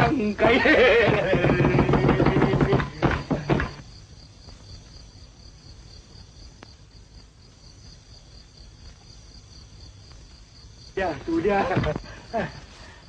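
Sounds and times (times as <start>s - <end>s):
crickets chirping: 0.0s - 13.0s
faint film hiss: 3.7s - 13.0s.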